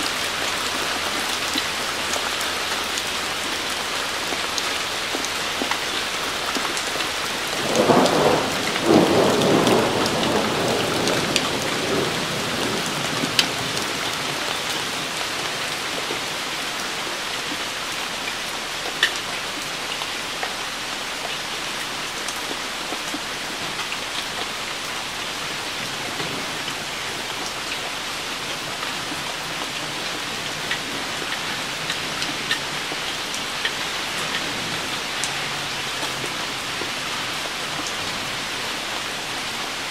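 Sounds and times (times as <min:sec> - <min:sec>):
rain falling on leaves: 0:00.0 - 0:39.9
thunder rumble: 0:07.5 - 0:15.2.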